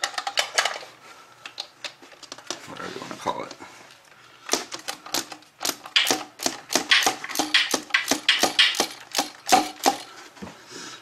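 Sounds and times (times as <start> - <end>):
ratchet wrench clicking: 5.1 - 10.1.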